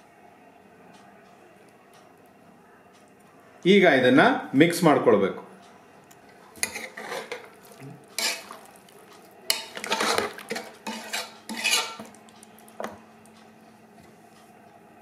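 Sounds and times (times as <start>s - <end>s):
metal spoon scraping a pot: 6.6s - 7.5s, 8.2s - 8.6s, 9.5s - 12.1s
spoon clinking against pot: 9.5s - 12.2s.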